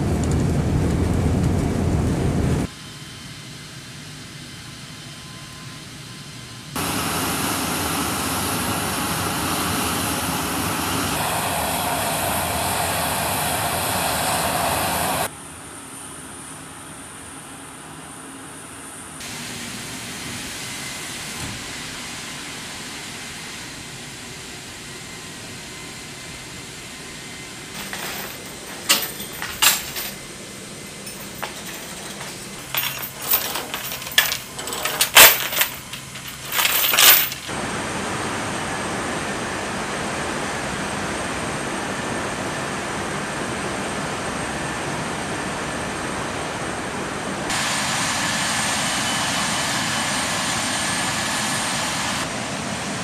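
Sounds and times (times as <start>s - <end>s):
rushing engine noise: 0.0s - 2.7s, 6.8s - 15.3s, 27.8s - 53.0s
metal chains clinking: 27.8s - 30.2s, 30.9s - 37.5s.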